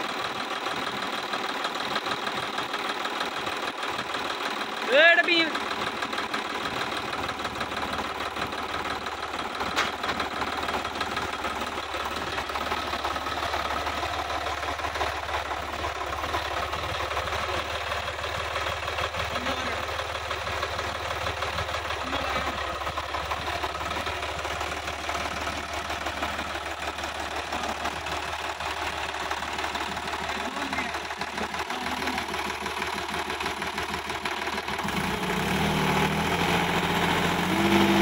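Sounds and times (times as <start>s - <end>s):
tractor diesel engine running: 0.0s - 38.0s.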